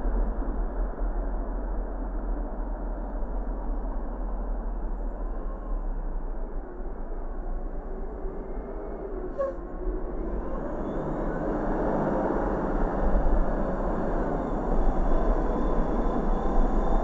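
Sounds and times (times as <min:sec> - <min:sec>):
road and tyre noise: 0:00.0 - 0:17.0.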